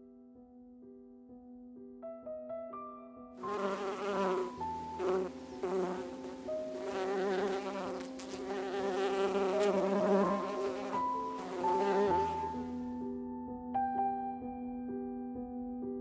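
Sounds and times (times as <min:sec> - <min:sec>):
soft sustained piano notes: 0:00.0 - 0:16.0
honey bees buzzing: 0:03.4 - 0:12.9.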